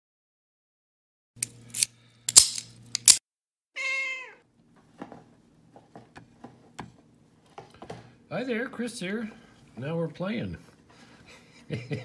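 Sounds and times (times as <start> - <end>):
cat meowing: 3.8 - 4.4.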